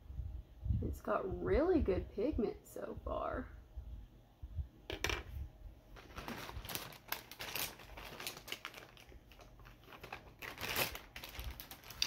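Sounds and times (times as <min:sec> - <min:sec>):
plastic rustling: 0:05.9 - 0:12.0
items clattering: 0:06.0 - 0:12.0.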